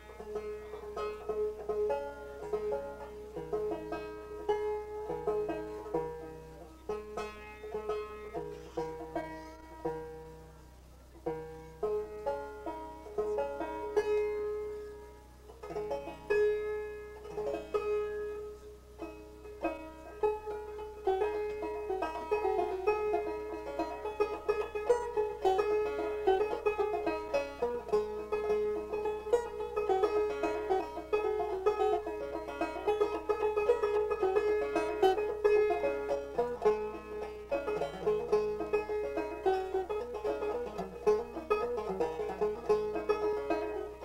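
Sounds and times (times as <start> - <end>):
solo banjo playing fast tune: 0.0 - 44.0.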